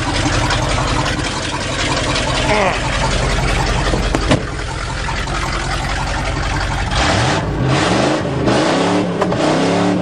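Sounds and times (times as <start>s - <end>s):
truck engine pulling: 0.0s - 10.0s.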